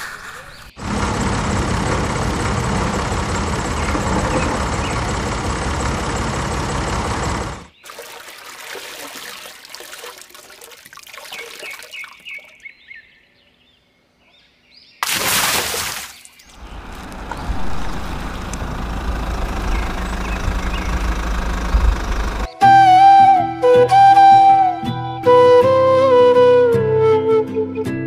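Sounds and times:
birds chirping: 0:02.4 - 0:08.4, 0:11.1 - 0:15.0, 0:16.0 - 0:22.6
steady low rumble: 0:16.6 - 0:22.5.

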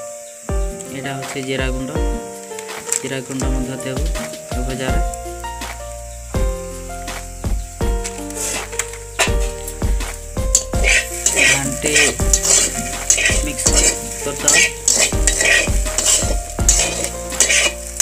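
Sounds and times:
potatoes sizzling in oil: 0:00.0 - 0:18.0
metal spatula scraping a pan: 0:08.2 - 0:09.6, 0:10.6 - 0:18.0.

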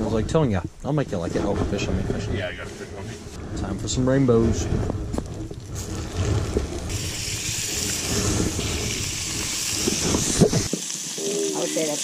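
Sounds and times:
fish fillets sizzling in a frying pan: 0:06.9 - 0:12.0.

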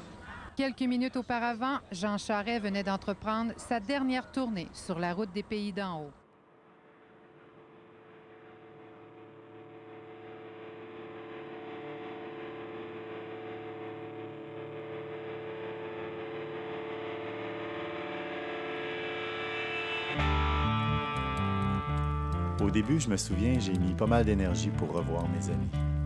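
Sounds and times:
sustained musical drone chord: 0:06.4 - 0:24.9.

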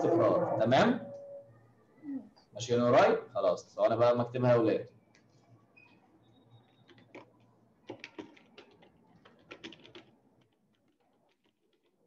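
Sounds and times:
keyboard keys clicking: 0:06.8 - 0:10.1.

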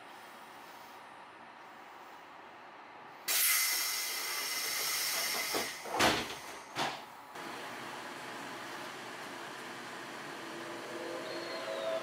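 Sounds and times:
compressed air hiss: 0:03.3 - 0:05.8.

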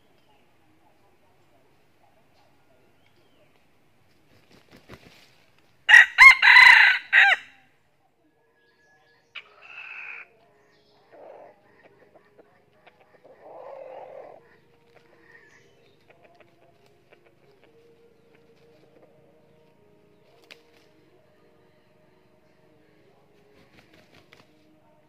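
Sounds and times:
rooster crowing: 0:05.9 - 0:07.6.

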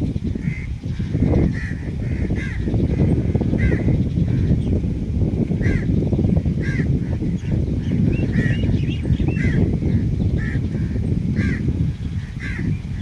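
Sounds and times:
loud steady low rumble: 0:00.0 - 0:13.0
bird calling: 0:06.6 - 0:13.0.

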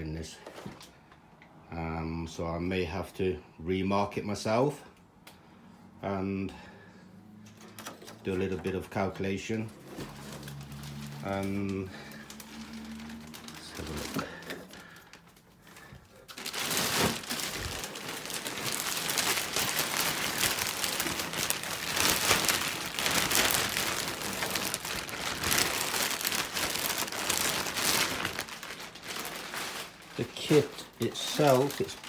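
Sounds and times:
plastic packaging crinkling: 0:08.2 - 0:32.0.

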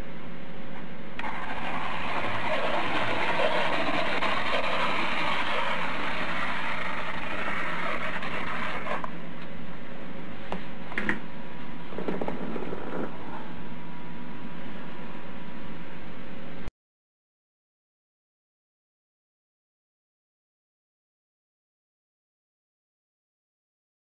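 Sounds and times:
apple peeler gears whirring: 0:01.2 - 0:09.1
blade scraping apple peel: 0:01.2 - 0:09.1.

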